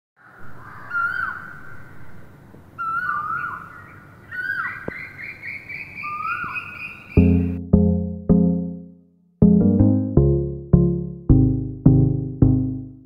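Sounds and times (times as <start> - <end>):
birds whistling calls: 0.5 - 1.9, 2.8 - 7.2
high bird chirping: 2.8 - 7.6.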